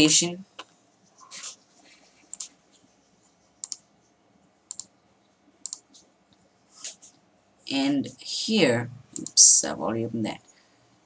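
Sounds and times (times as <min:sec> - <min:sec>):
computer mouse clicks: 0:02.2 - 0:02.5, 0:03.6 - 0:03.9, 0:04.7 - 0:04.9, 0:05.6 - 0:06.1, 0:09.1 - 0:09.4.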